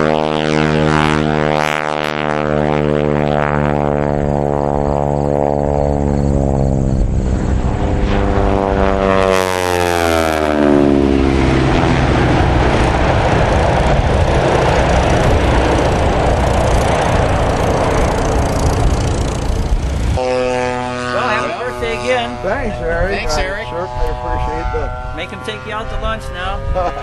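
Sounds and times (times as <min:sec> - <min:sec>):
propeller plane flyby: 0:00.0 - 0:27.0.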